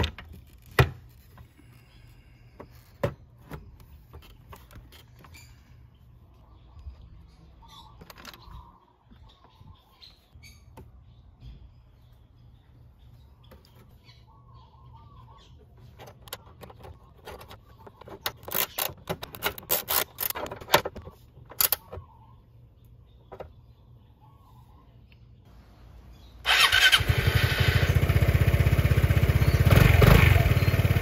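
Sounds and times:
birds chirping: 0.0s - 31.0s
gear wrench ratcheting: 18.3s - 20.5s.

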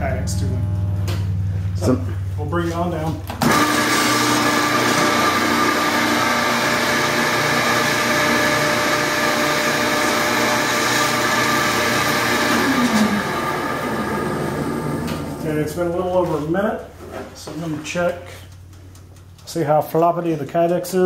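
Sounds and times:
hydraulic pump motor running: 0.0s - 15.6s.

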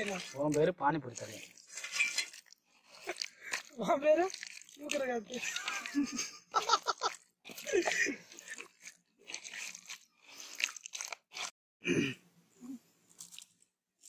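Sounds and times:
hands squelching raw chicken: 0.0s - 11.5s
person laughing: 5.3s - 8.4s.

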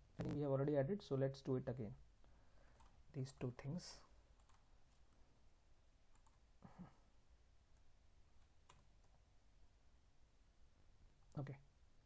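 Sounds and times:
computer mouse clicks: 4.4s - 5.2s, 6.1s - 6.4s.

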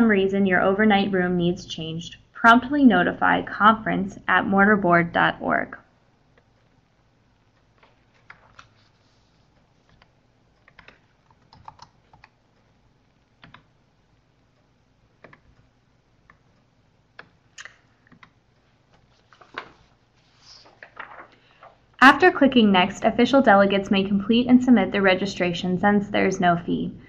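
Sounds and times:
keyboard keystrokes: 9.9s - 12.3s.

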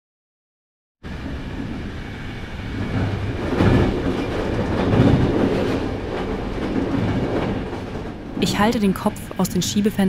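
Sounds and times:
train wheels rumbling on rails: 1.0s - 10.0s.

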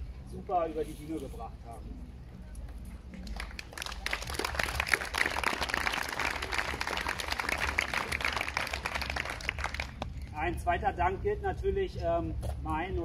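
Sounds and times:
audience applauding: 3.2s - 10.2s.

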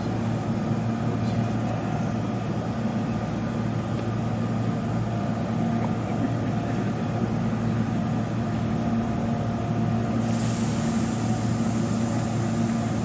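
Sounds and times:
electric train humming: 0.0s - 13.0s
air hiss: 10.2s - 13.0s.

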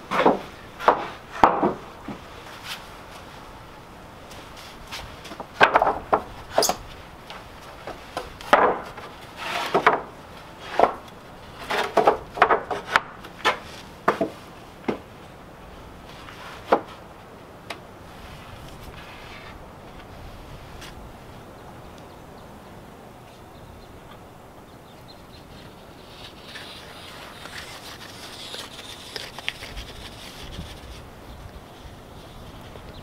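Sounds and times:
wooden planks knocking and scraping: 0.0s - 2.8s, 4.3s - 15.2s, 16.1s - 17.1s.

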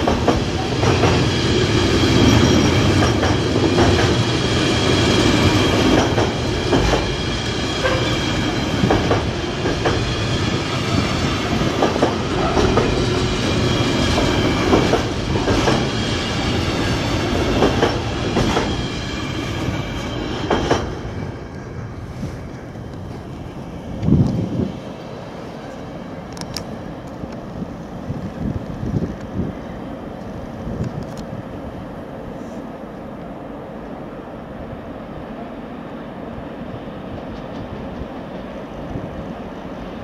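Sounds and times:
freight train wheels clattering: 0.0s - 21.4s.

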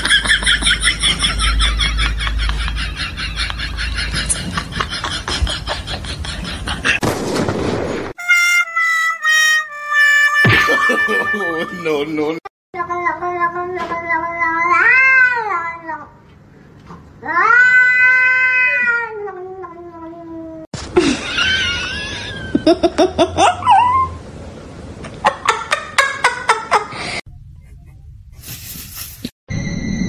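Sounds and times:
cat yowling: 17.2s - 20.7s.

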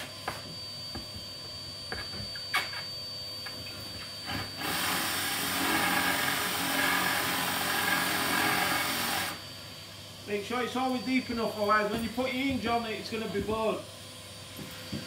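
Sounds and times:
cordless drill boring into wood: 4.3s - 9.4s.

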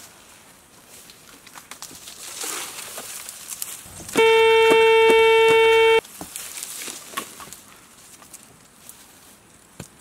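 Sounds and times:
metal detector steady tone: 4.2s - 6.0s.

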